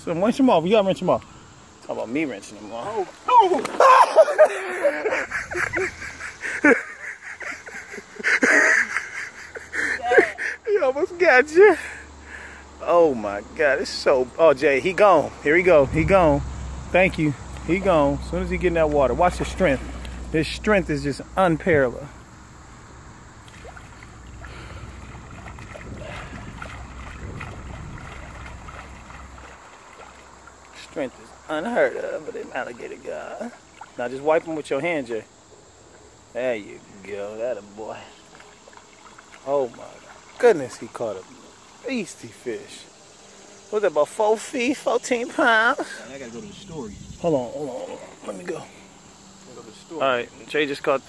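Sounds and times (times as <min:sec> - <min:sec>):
men yelping and exclaiming: 0:02.2 - 0:22.1, 0:43.7 - 0:50.8
water splashing and lapping: 0:02.7 - 0:10.8, 0:23.3 - 0:34.8, 0:37.8 - 0:42.8
low wind rumble on microphone: 0:24.3 - 0:29.6, 0:46.5 - 0:47.4.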